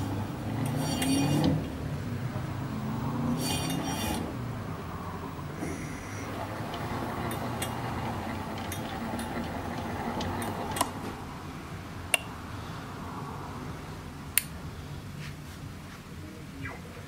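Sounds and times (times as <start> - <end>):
electric winch motor hum: 3.1 - 4.4, 5.4 - 11.1.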